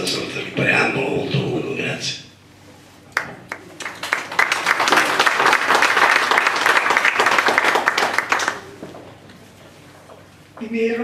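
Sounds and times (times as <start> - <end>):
audience applause: 3.2 - 8.8.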